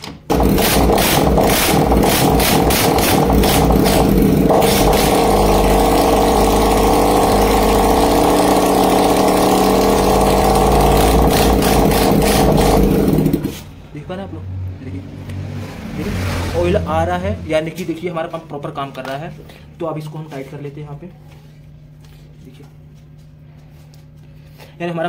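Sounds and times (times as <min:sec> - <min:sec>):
scooter engine running: 0:00.2 - 0:13.7.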